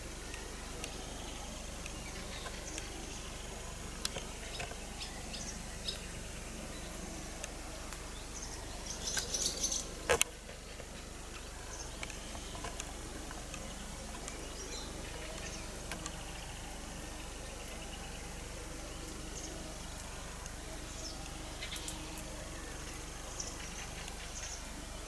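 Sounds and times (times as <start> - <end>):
steady background noise: 0.0 - 25.0
bird chirps: 8.1 - 10.0.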